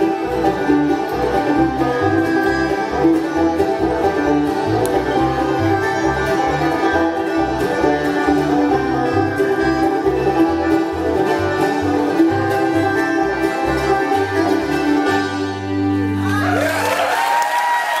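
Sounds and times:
plucked upright bass: 0:00.0 - 0:16.5
bluegrass band playing: 0:00.0 - 0:17.4.

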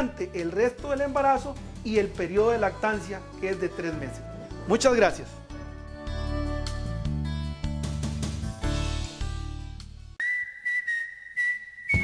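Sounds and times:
instrumental music with beat: 0:05.5 - 0:10.2.

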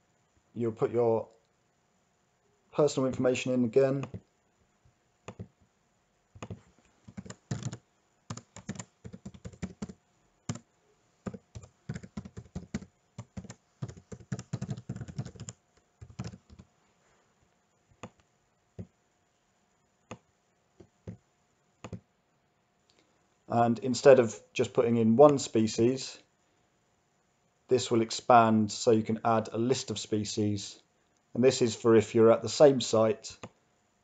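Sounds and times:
typing on computer keyboard: 0:04.0 - 0:04.2, 0:05.3 - 0:05.5, 0:06.4 - 0:10.6, 0:11.2 - 0:16.7, 0:21.8 - 0:22.0.

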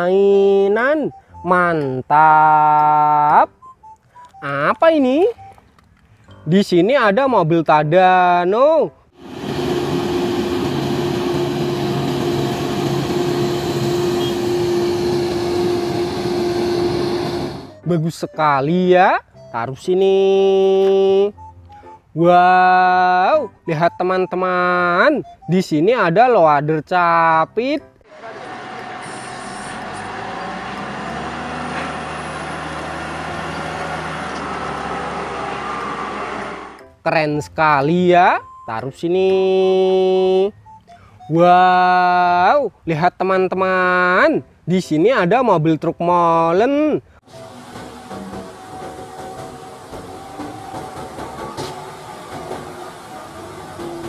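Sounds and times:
crane engine droning: 0:09.2 - 0:17.8, 0:28.1 - 0:36.8, 0:47.2 - 0:54.0.

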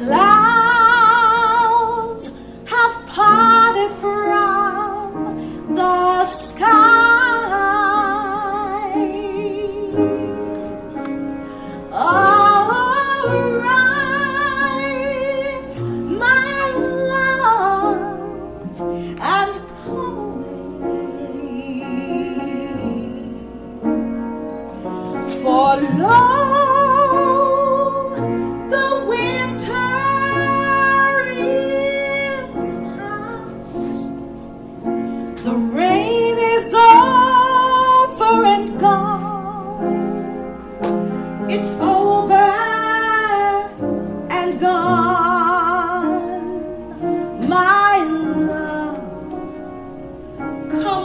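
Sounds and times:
woman singing with vibrato: 0:00.0 - 0:11.0, 0:11.6 - 0:23.7, 0:25.1 - 0:34.5, 0:35.4 - 0:40.2, 0:41.4 - 0:49.4, 0:50.6 - 0:51.0
singer breathing: 0:02.3 - 0:02.6, 0:05.3 - 0:05.7, 0:10.9 - 0:11.9, 0:18.8 - 0:19.2, 0:34.9 - 0:35.4.

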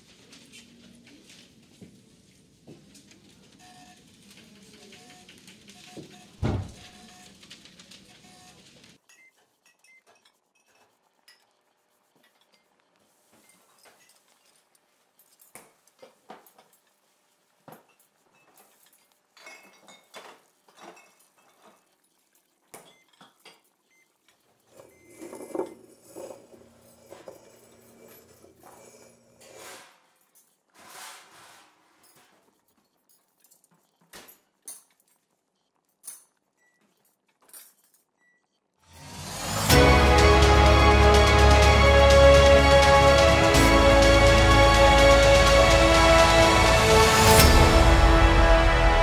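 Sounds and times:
glassware clinking on wooden counter: 0:19.4 - 0:21.7
music: 0:39.0 - 0:49.0
low hum: 0:39.1 - 0:49.0.

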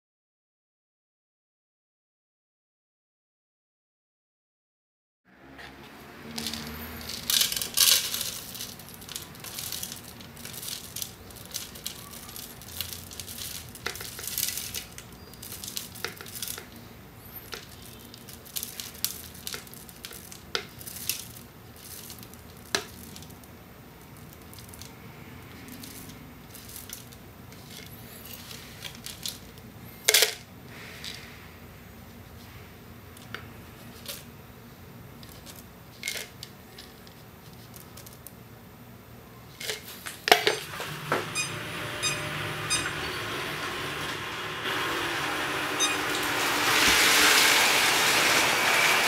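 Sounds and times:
oat flakes rustling: 0:42.9 - 0:49.0
spoon scraping against bowl: 0:45.7 - 0:46.6.

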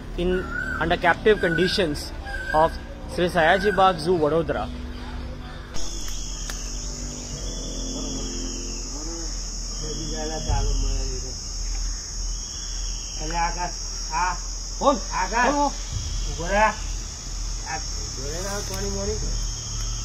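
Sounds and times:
high-pitched insect drone: 0:00.0 - 0:20.0
faint people talking: 0:00.2 - 0:11.4.

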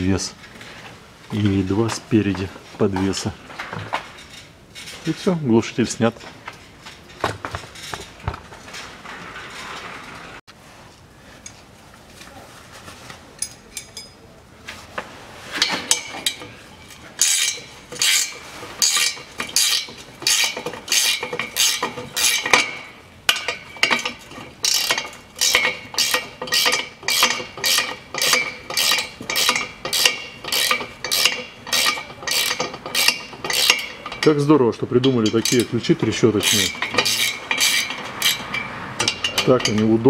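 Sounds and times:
ratchet wrench clicking: 0:23.4 - 0:34.2, 0:36.4 - 0:39.8.

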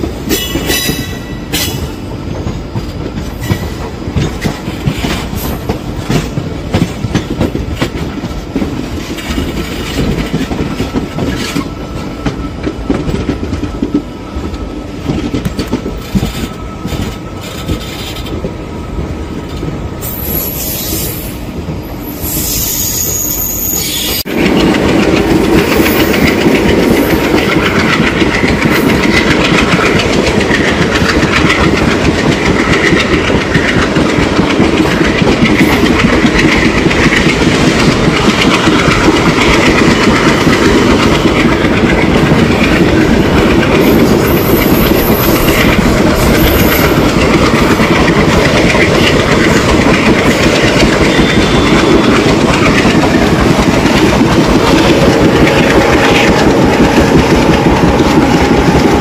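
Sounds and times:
loud train rumble: 0:00.0 - 0:59.0
train wheels clattering on rails: 0:00.0 - 0:59.0.

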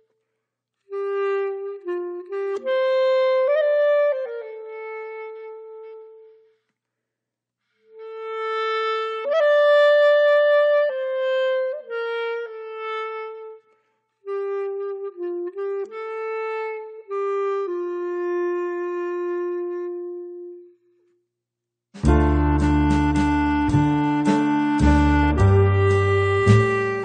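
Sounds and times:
slow melody of held notes: 0:22.0 - 0:27.0.

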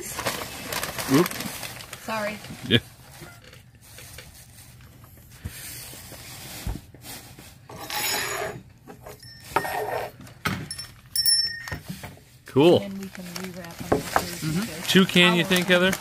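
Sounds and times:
newspaper rustling and crinkling: 0:00.0 - 0:03.2, 0:12.6 - 0:16.0.

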